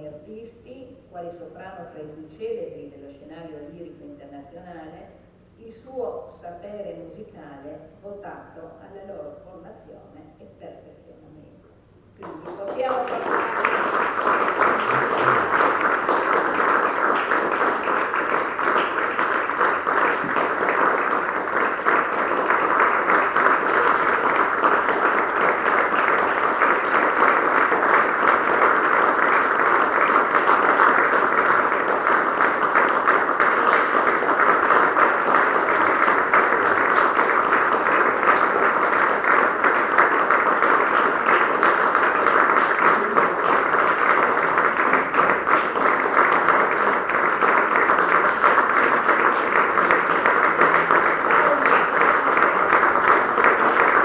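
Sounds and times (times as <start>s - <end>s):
audience applauding: 12.2s - 54.0s.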